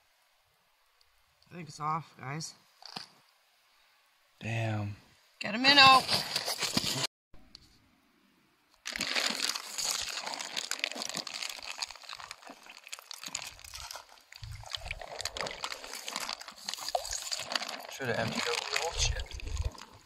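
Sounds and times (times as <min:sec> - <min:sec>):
crunching snow and slush: 0:08.8 - 0:20.0
plastic bag crinkling: 0:08.8 - 0:20.0.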